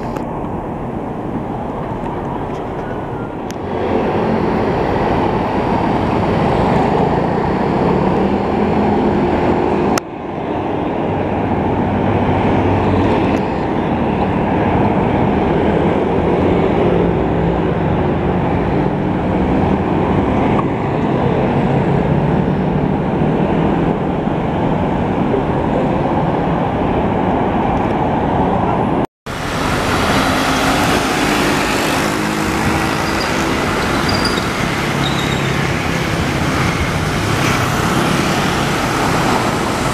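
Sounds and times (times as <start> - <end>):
scooters and cars passing: 0.0 - 39.9
street sweeper engine running: 29.3 - 39.9.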